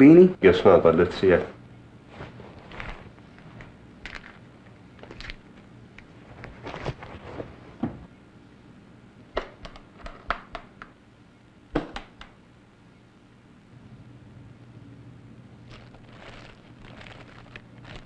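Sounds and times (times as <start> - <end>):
handling knocks and rustles: 2.1 - 8.1.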